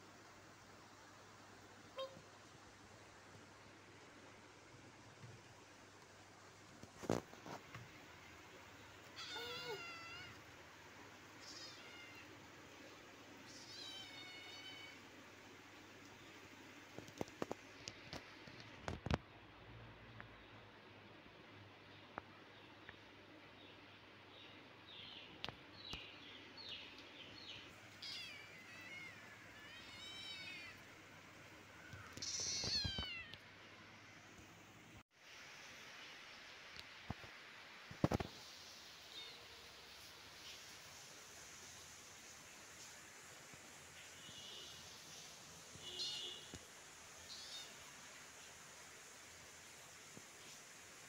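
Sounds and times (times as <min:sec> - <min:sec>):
kitten meowing: 0:09.2 - 0:10.4, 0:11.4 - 0:12.3, 0:32.1 - 0:33.4.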